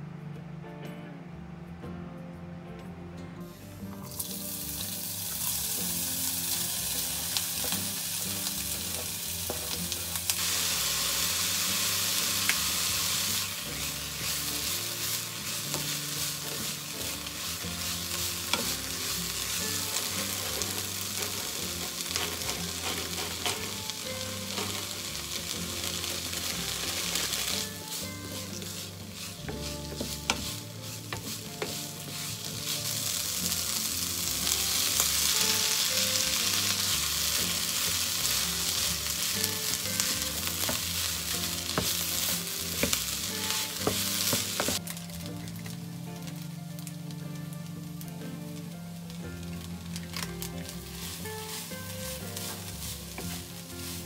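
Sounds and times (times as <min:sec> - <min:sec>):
soft background music: 0:00.0 - 0:54.0
food sizzling in a pan: 0:03.5 - 0:54.0.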